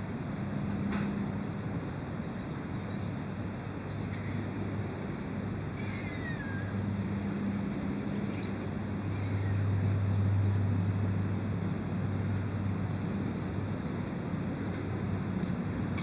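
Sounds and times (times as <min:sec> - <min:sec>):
low motor hum: 0:06.2 - 0:16.0.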